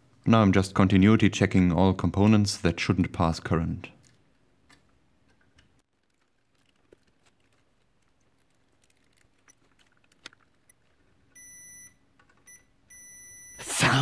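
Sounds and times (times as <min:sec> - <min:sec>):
multimeter continuity beeps: 0:10.6 - 0:13.6.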